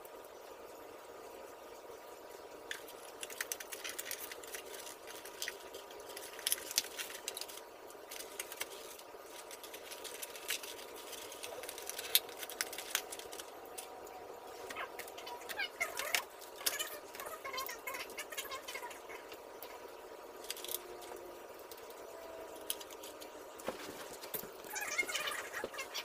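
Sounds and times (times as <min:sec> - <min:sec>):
faint steady hum: 0:00.0 - 0:26.0
hands clicking puzzle pieces together: 0:02.7 - 0:13.9.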